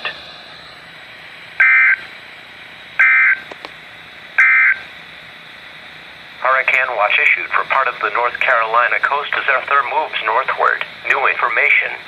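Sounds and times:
faint radio hiss: 5.8 - 12.0.

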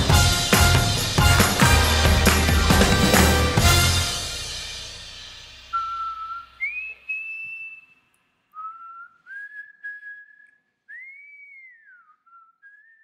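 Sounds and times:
backing music: 0.0 - 6.7
person whistling a tune: 5.7 - 13.0.

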